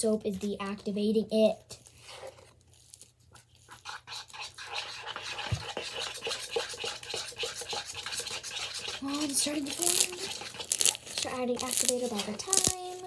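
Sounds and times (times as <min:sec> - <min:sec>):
slime squished by hand: 0:09.7 - 0:13.0.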